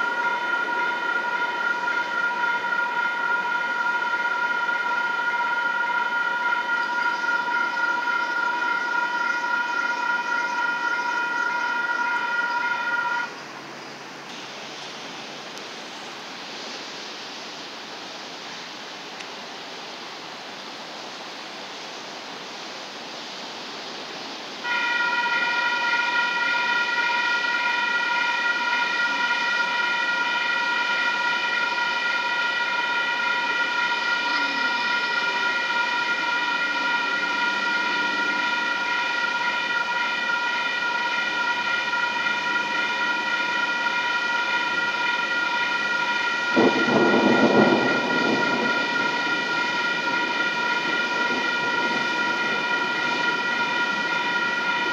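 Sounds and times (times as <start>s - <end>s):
crossing warning bells ringing: 0.0s - 13.4s, 24.6s - 54.9s
train horn blast: 0.0s - 13.4s, 24.6s - 54.9s
rain hiss: 0.0s - 54.9s.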